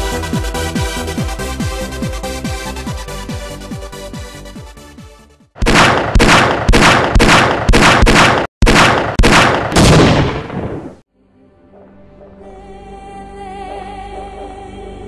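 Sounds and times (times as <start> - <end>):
electronic music: 0.0 - 5.3
soft music: 0.0 - 5.4, 11.1 - 15.0.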